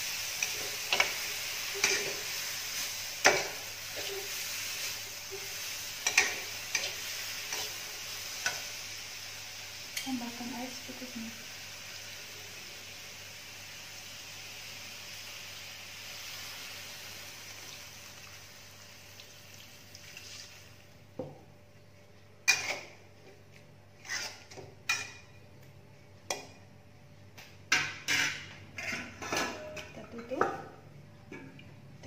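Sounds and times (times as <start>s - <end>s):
water sizzling in hot wok: 0.0s - 20.9s
metal spatula scraping wok: 0.2s - 8.6s, 22.5s - 23.0s, 24.0s - 25.2s, 28.0s - 29.8s.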